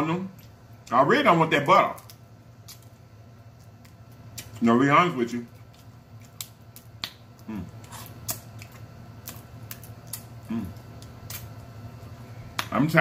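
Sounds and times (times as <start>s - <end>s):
crab shells cracking: 5.4s - 11.7s
person humming: 7.4s - 7.8s, 10.5s - 10.8s.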